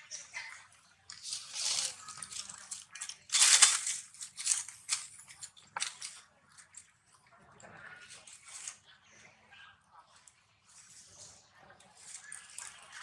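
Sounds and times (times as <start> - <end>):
dry leaves rustling and crunching: 1.1 - 6.2.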